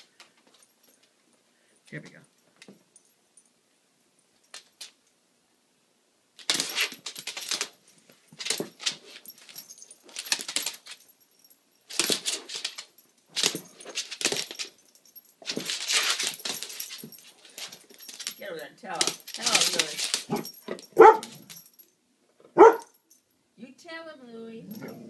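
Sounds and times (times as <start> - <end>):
collar tags jangling: 0.0 - 5.2, 6.4 - 25.0
dogs scuffling: 6.4 - 21.8.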